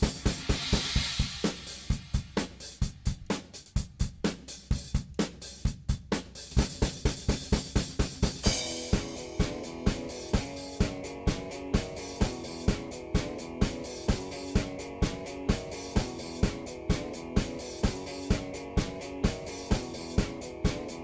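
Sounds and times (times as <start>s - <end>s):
cymbal crash: 0.0s - 2.4s
fast drum beat: 0.0s - 21.0s.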